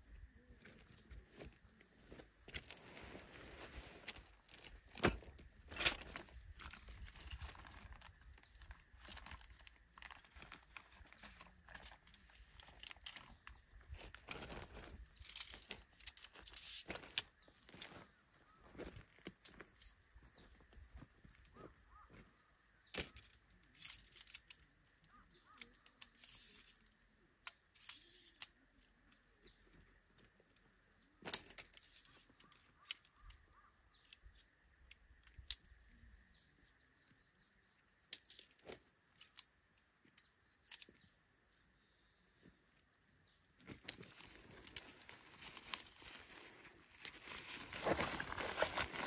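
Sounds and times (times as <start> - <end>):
tent fabric rustling: 2.7 - 4.3, 44.2 - 49.0.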